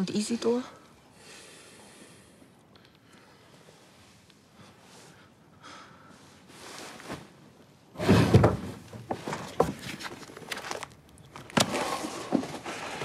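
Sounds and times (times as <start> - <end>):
loud clatter of handled things: 8.0 - 13.0
papers rustling: 8.3 - 13.0.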